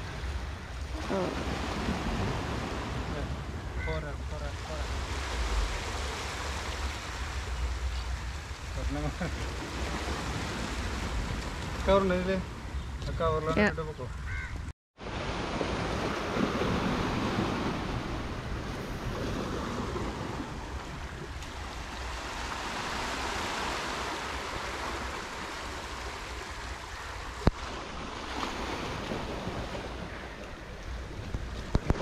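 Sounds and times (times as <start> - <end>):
sea surf washing on beach: 0.0 - 12.6, 15.0 - 32.0
wind on microphone: 12.5 - 32.0.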